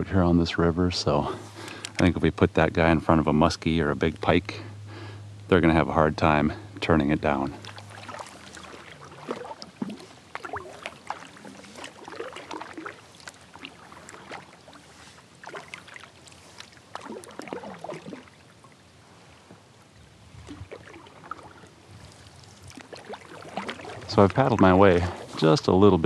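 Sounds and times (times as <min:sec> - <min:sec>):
paddle strokes in water: 0:07.2 - 0:26.0
water dripping: 0:07.5 - 0:18.8.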